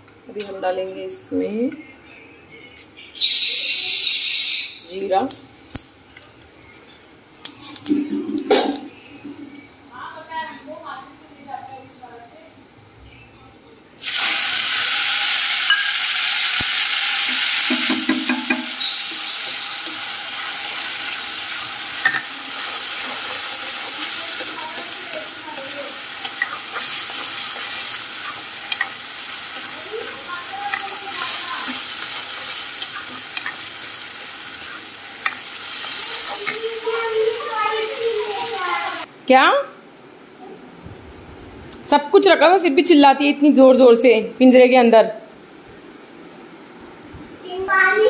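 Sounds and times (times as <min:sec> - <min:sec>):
paste sizzling in hot oil: 0:14.0 - 0:39.1.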